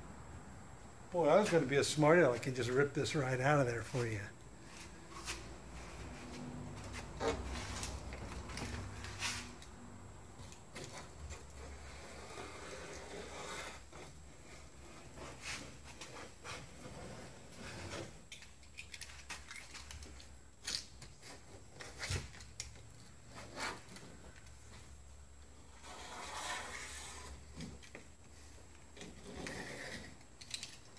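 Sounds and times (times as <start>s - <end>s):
knife scraping rubber seal: 25.8s - 27.4s, 29.2s - 30.7s.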